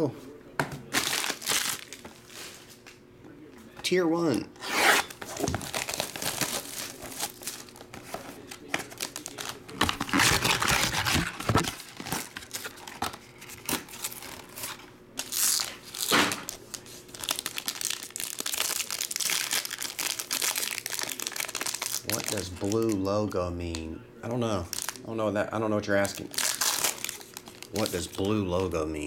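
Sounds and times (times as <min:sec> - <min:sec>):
plastic shrink-wrap tearing: 0:00.9 - 0:02.1, 0:04.7 - 0:07.9, 0:08.7 - 0:23.0, 0:24.6 - 0:25.0, 0:25.9 - 0:28.7
foil wrapper crinkling: 0:00.9 - 0:02.5, 0:05.1 - 0:23.1, 0:24.6 - 0:25.1, 0:25.9 - 0:28.8.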